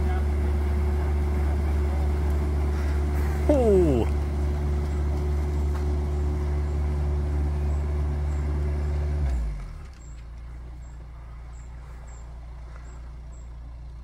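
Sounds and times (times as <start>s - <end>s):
boat diesel engine running: 0.0s - 14.0s.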